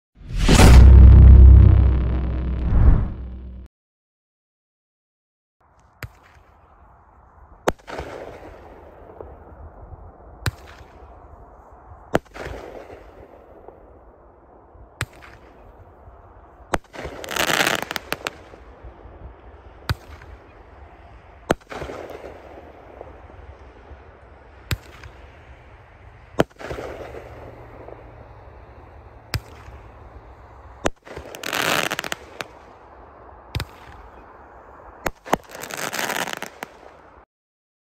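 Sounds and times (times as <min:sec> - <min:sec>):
crackling firework stars: 0:05.6 - 0:37.3.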